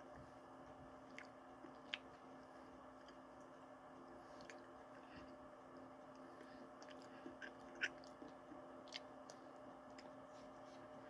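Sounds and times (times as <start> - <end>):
eating mouth sounds: 6.8 - 8.2.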